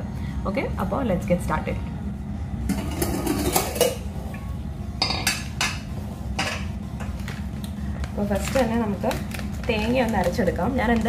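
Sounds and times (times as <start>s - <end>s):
steady low hum: 0.0s - 11.0s
metal kitchen vessels clinking: 2.7s - 4.4s.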